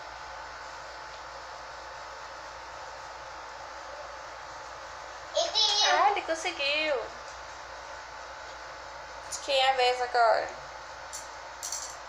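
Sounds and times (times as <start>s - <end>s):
fan hissing: 0.0s - 11.6s.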